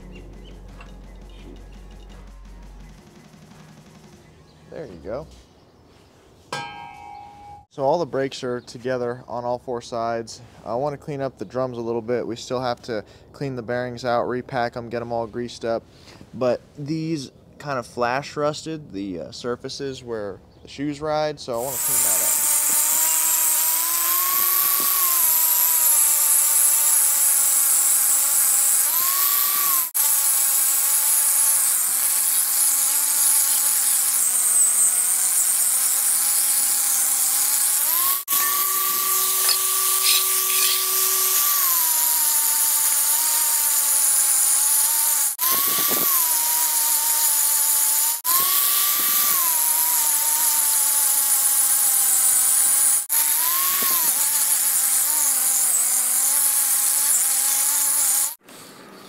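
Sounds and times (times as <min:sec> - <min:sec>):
power tool grinding metal: 0:21.5 - 0:58.5.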